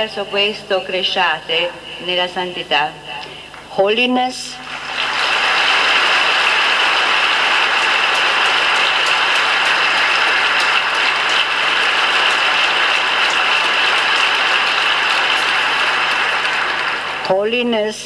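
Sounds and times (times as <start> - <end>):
audience applause: 4.7 - 17.4.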